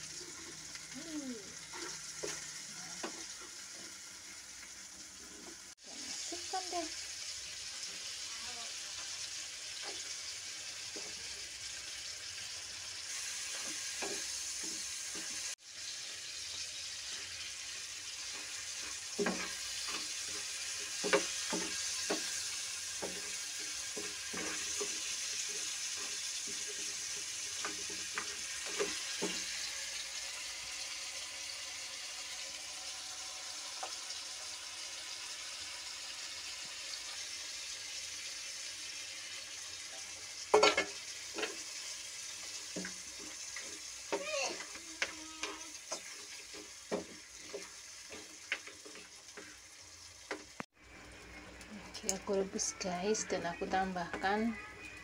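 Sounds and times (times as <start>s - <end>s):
food sizzling in hot oil: 0.0s - 55.0s
spatula knocking and scraping pan: 1.7s - 4.0s, 13.4s - 15.5s, 18.2s - 30.0s, 40.5s - 49.6s.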